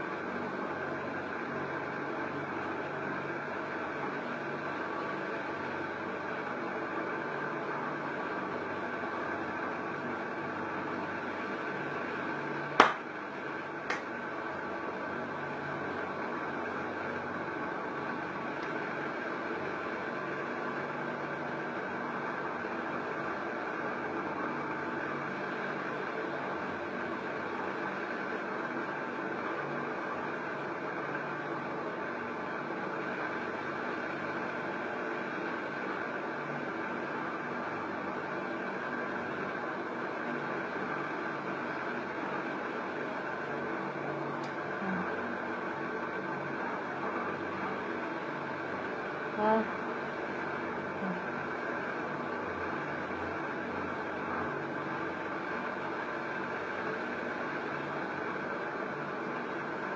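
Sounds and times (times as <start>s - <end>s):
machinery hum and hiss: 0.0s - 59.9s
hands slapping: 12.8s - 13.1s, 13.9s - 14.1s.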